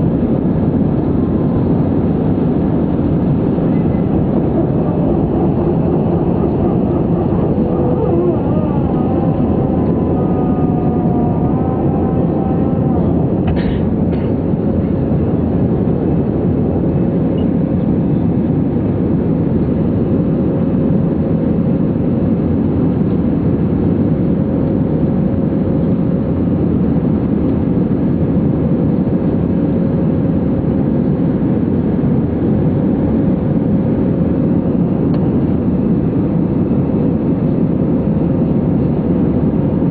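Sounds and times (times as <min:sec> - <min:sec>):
jet engines at high thrust: 0:00.0 - 0:39.9
faint whining tones: 0:00.3 - 0:15.4.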